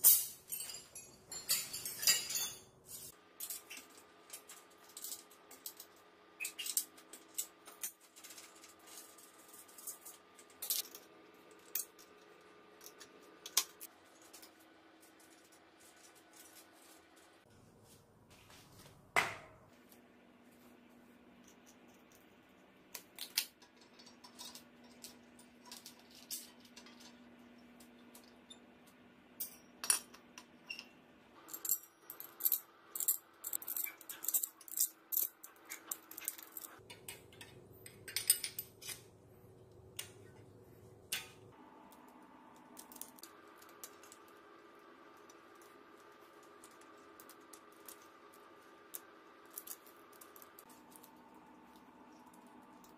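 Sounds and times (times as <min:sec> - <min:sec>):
small metal parts clinking: 0:00.0 - 0:16.6, 0:23.2 - 0:28.6, 0:29.4 - 0:39.1, 0:45.2 - 0:51.2.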